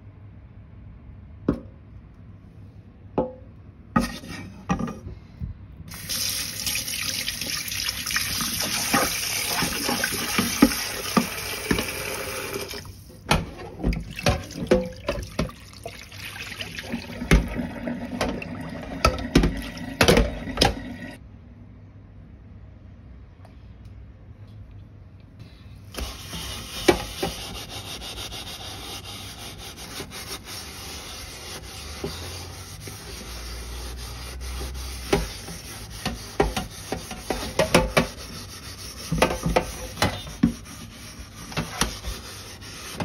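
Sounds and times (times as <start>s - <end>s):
tap water running into pan: 5.9s - 13.0s, 13.9s - 21.2s.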